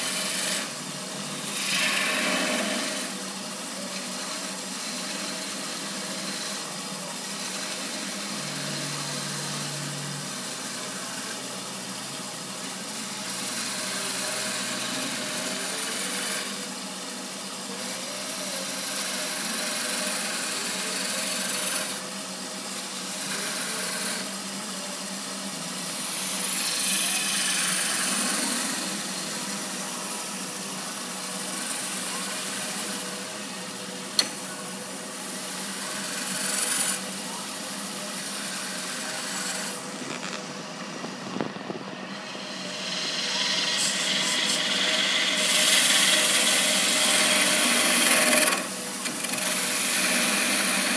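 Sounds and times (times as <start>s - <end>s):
turning tool cutting wood: 0.0s - 50.9s
wood lathe running: 0.0s - 50.9s.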